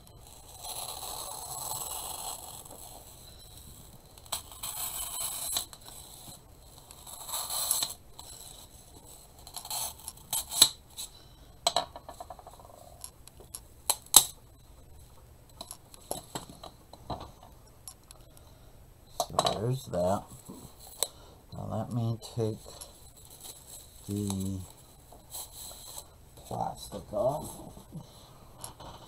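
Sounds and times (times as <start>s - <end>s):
plastic crinkling and scraping: 22.5s - 28.0s.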